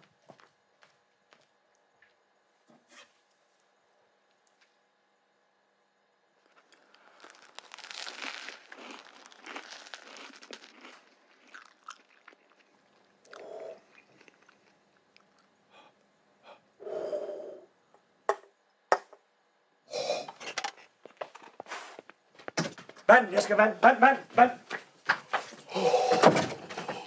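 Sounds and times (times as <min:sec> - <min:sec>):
man chewing sandwich: 0:06.4 - 0:16.7
breathy mouth sounds: 0:13.0 - 0:17.7
man huffing: 0:25.7 - 0:27.0.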